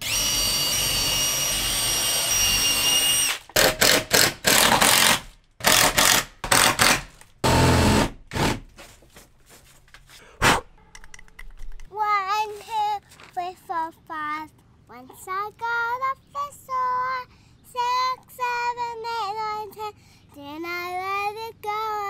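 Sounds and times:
cordless drill whining: 0.0s - 8.6s.

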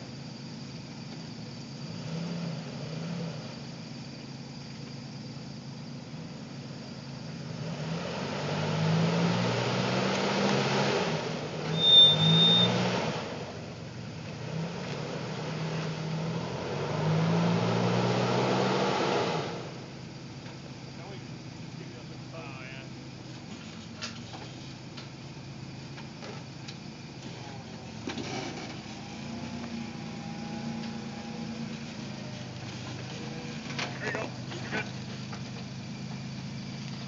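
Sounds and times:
pickup engine revving: 0.0s - 37.0s
high-pitched squeal: 11.6s - 13.1s.

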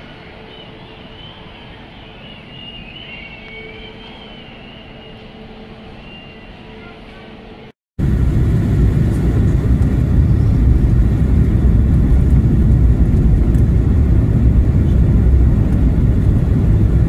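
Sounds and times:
airplane cabin rumble: 4.7s - 17.0s.

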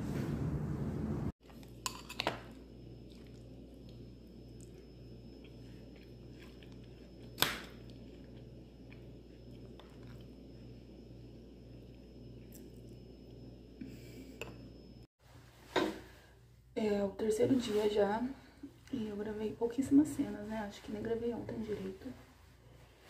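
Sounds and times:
faint pulsing low hum: 0.0s - 15.4s.

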